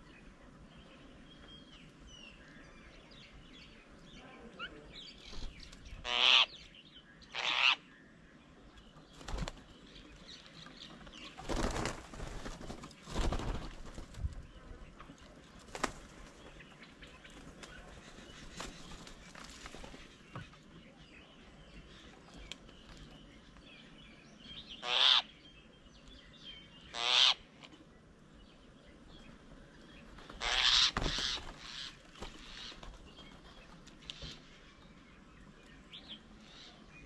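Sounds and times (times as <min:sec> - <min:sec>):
bird wings flapping: 0:09.1 - 0:09.8, 0:11.2 - 0:14.5, 0:15.6 - 0:20.1, 0:30.0 - 0:34.0.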